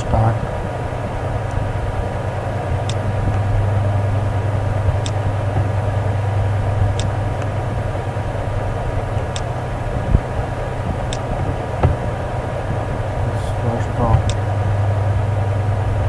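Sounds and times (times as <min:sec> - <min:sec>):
low hum: 0:00.0 - 0:16.0
faint clicks: 0:02.8 - 0:03.7, 0:06.8 - 0:07.6, 0:09.2 - 0:09.6, 0:10.9 - 0:12.0, 0:14.1 - 0:14.5.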